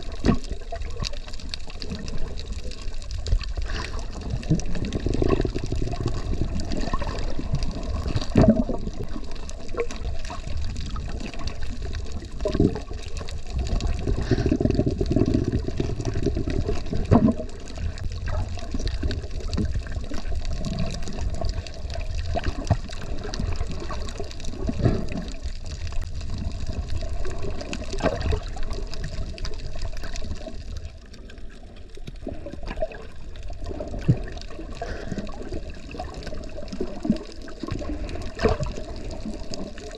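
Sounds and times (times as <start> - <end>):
underwater water sloshing: 0.0 - 39.9.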